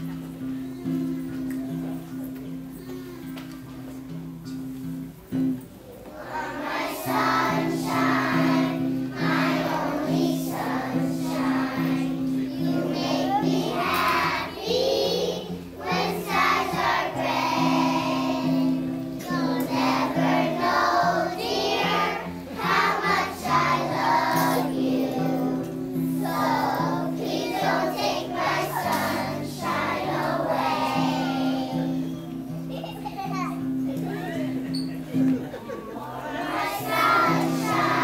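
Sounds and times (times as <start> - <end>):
children's choir singing: 6.0 - 32.6, 36.1 - 38.0.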